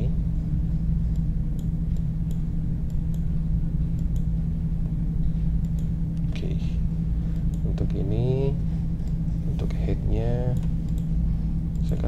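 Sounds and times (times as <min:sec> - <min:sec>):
steady low hum: 0:00.0 - 0:12.0
computer mouse clicks: 0:10.5 - 0:11.1, 0:11.7 - 0:12.0.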